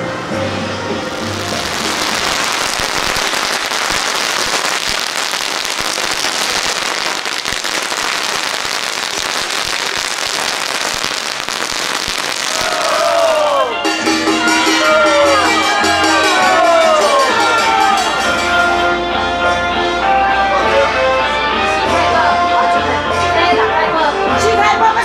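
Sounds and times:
firecrackers crackling: 1.1s - 18.8s.

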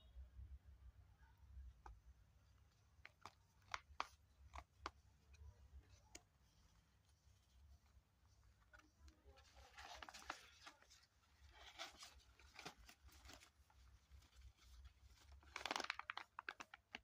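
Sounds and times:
plastic pouches crinkling: 8.2s - 17.0s.

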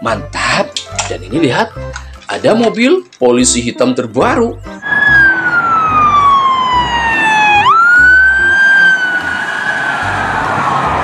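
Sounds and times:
police siren wailing: 4.8s - 11.0s.

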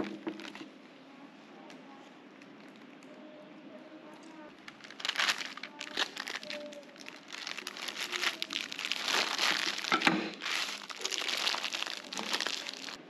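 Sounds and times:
plastic sheet crinkling: 0.0s - 0.7s, 4.5s - 13.0s.

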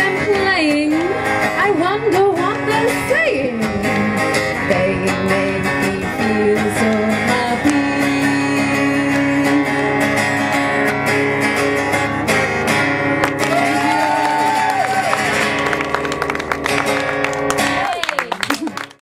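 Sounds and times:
woman singing: 0.0s - 10.6s
acoustic guitar strumming: 0.0s - 18.0s.

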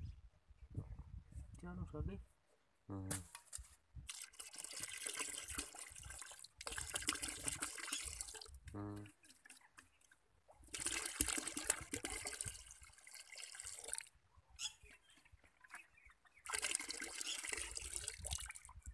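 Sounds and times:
liquid pouring into bucket: 4.1s - 9.6s, 10.6s - 14.2s, 16.4s - 18.9s.

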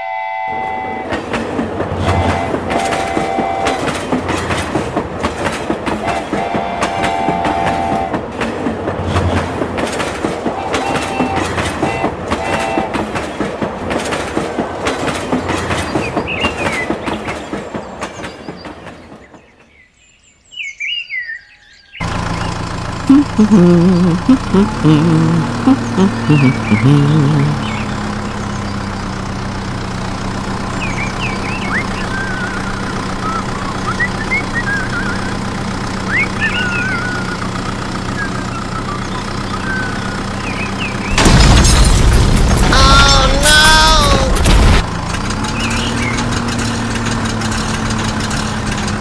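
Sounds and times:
toy train whistle: 0.0s - 1.1s, 2.1s - 3.9s, 6.1s - 8.2s
engine-like hum: 0.0s - 17.5s, 21.7s - 49.0s
toy train clattering on track: 2.7s - 7.1s, 8.4s - 18.9s, 42.4s - 49.0s.

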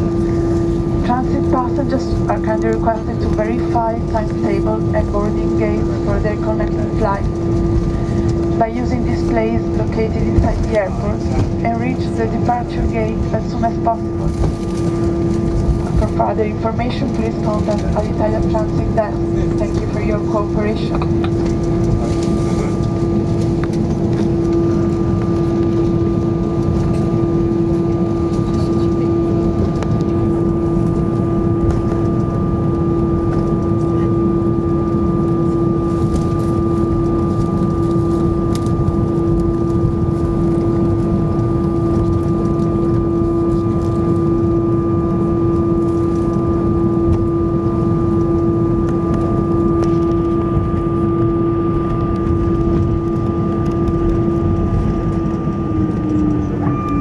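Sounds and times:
airflow: 0.0s - 2.4s, 4.0s - 10.0s
constant cabin hum: 0.0s - 57.0s.

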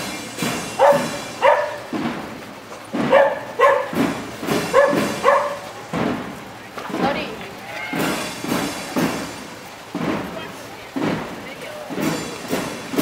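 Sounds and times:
dog barking: 0.8s - 1.8s, 3.0s - 4.0s, 4.7s - 5.7s.

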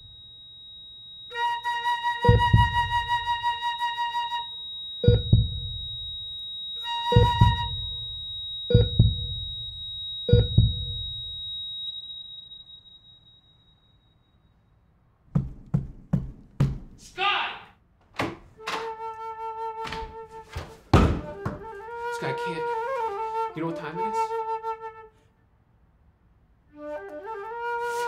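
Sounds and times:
thin high steady tone: 0.0s - 14.8s
flute sustained note: 1.3s - 8.4s, 18.7s - 20.6s, 21.2s - 25.2s, 26.8s - 28.0s
deep booming hits: 8.8s - 9.7s, 10.3s - 11.3s
sharp knocks: 15.3s - 17.0s, 19.8s - 21.7s.

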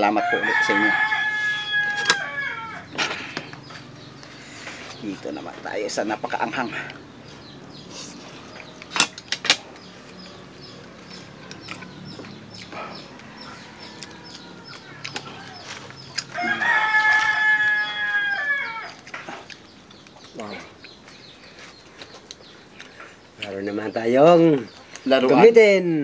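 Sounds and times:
rooster crowing: 0.0s - 3.0s, 13.1s - 19.0s.

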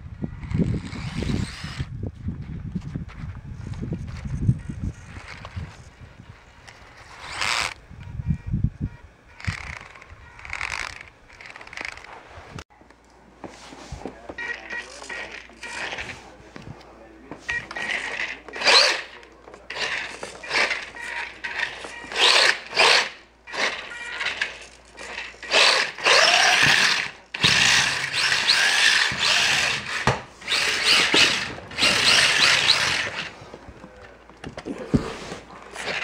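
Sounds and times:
small electric motor whining: 0.3s - 1.9s, 3.6s - 7.8s, 9.3s - 12.2s, 17.6s - 33.5s, 35.6s - 36.0s.

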